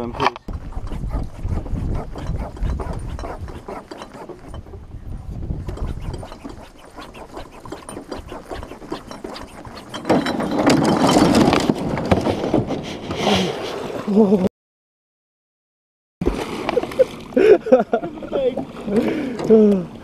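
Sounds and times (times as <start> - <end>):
clothing rubbing against camera: 0.5 - 4.5, 5.6 - 10.0.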